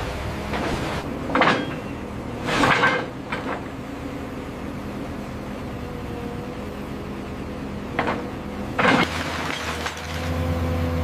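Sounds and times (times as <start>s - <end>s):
excavator mechanical hum: 0.0s - 11.0s
metal clanking and scraping: 0.6s - 3.6s.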